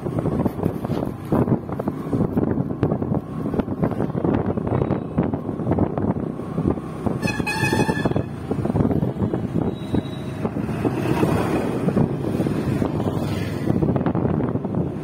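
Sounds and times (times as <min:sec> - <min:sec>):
road traffic: 0:00.0 - 0:15.0
wind buffeting microphone: 0:00.0 - 0:15.0
vehicle horn honk: 0:07.2 - 0:08.3.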